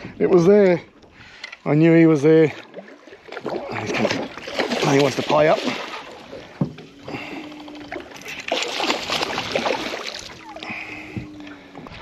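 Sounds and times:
low hum: 0:05.8 - 0:12.0
fish splashing at surface: 0:07.2 - 0:10.8.

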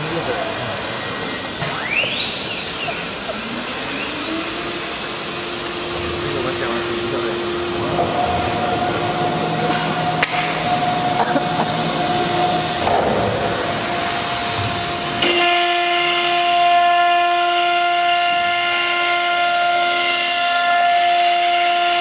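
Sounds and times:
router spindle motor whine: 0:00.0 - 0:22.0
rushing air noise: 0:02.9 - 0:15.2.

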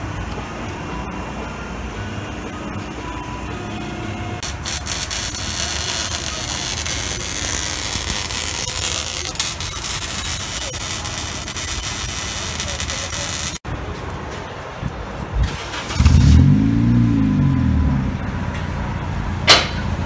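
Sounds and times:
welding arc crackling hiss: 0:04.4 - 0:13.6.

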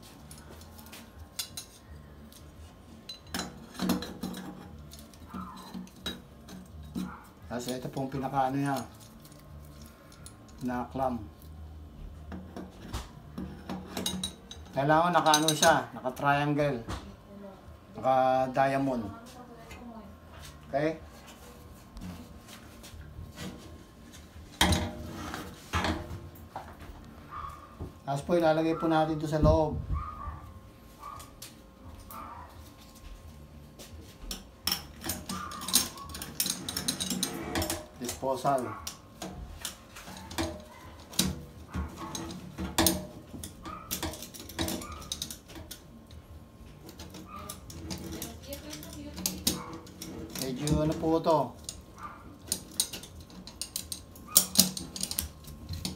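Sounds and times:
metal hardware clinking on sink: 0:03.1 - 0:07.1, 0:13.4 - 0:15.8, 0:34.3 - 0:45.8, 0:46.9 - 0:51.8, 0:52.5 - 0:55.9.

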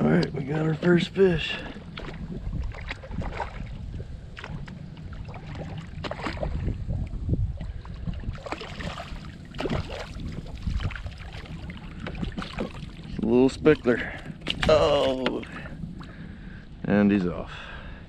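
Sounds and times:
wind buffeting microphone: 0:00.0 - 0:18.0
fish splashing at water surface: 0:08.3 - 0:13.0.

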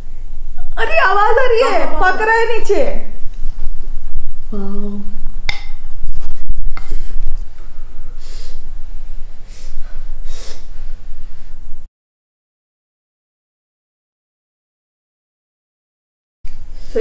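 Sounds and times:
person humming: 0:04.5 - 0:05.1
breath blowing on food: 0:08.1 - 0:08.6, 0:09.4 - 0:10.7.

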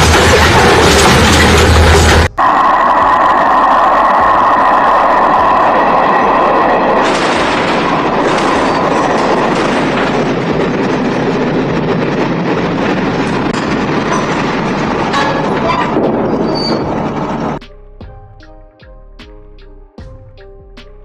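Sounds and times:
train wheels on rails: 0:00.0 - 0:17.6.

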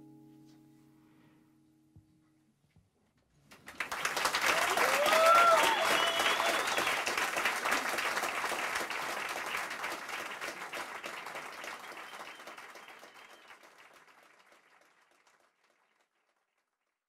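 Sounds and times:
audience applauding: 0:03.5 - 0:16.8.

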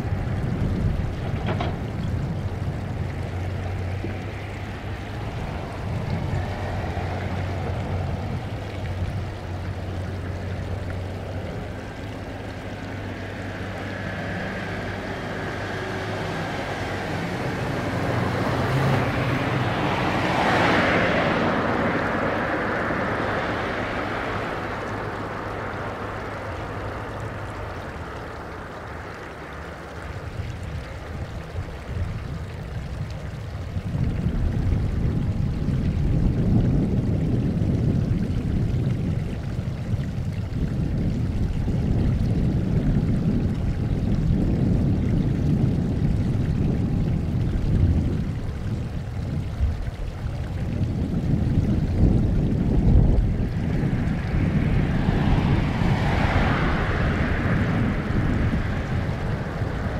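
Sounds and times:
jet engines roaring at takeoff: 0:53.1 - 0:59.9.

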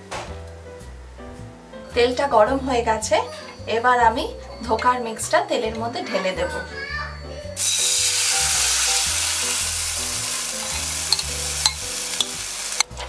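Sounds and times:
batter sizzling in hot oil: 0:07.6 - 0:12.9
spatula clicks: 0:11.1 - 0:12.9.

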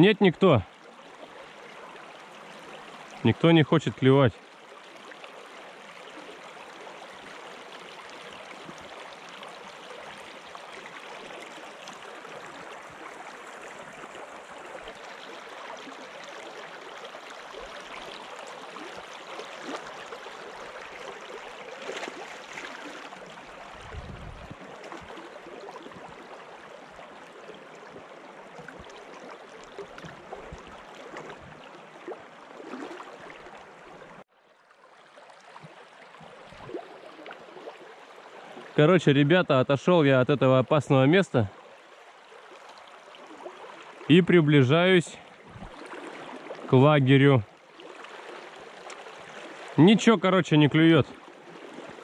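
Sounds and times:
river water rushing: 0:04.4 - 0:34.2, 0:41.8 - 0:47.0.

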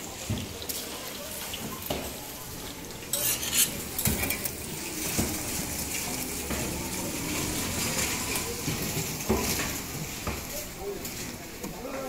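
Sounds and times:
metal utensils clinking: 0:01.4 - 0:06.5.

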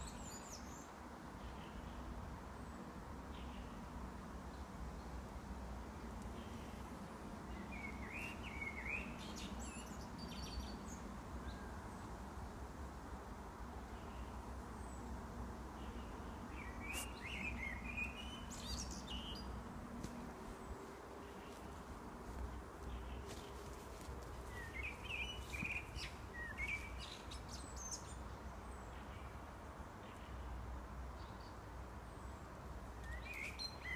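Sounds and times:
blackbird singing: 0:07.6 - 0:11.7, 0:16.0 - 0:19.6, 0:24.5 - 0:28.2.

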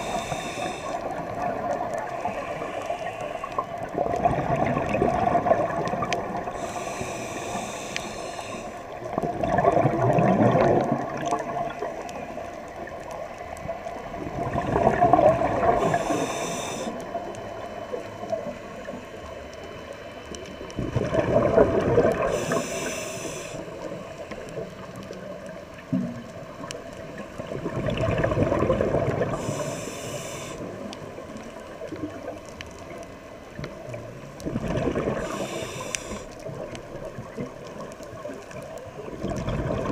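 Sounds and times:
regulator hiss on inhale: 0:00.0 - 0:03.9, 0:06.2 - 0:09.1, 0:15.2 - 0:20.3, 0:22.1 - 0:25.0, 0:29.1 - 0:33.4, 0:35.0 - 0:36.8
bubbles gushing on exhale: 0:03.8 - 0:06.7, 0:09.0 - 0:11.9, 0:14.2 - 0:16.2, 0:20.8 - 0:22.6, 0:27.4 - 0:29.6, 0:33.9 - 0:35.5, 0:39.0 - 0:39.9.

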